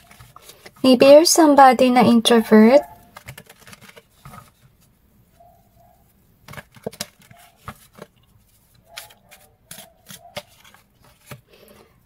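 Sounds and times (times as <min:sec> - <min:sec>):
cards being shuffled: 0:03.1 - 0:04.7, 0:06.4 - 0:11.7.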